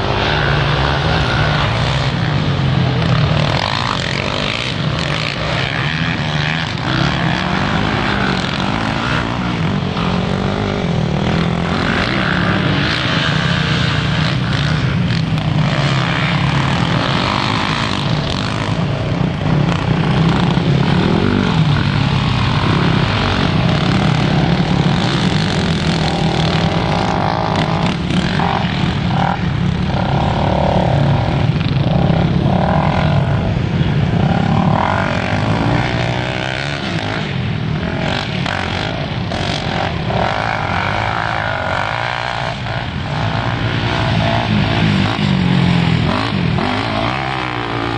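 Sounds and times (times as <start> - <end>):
quad bike engines revving: 0.0 - 47.9.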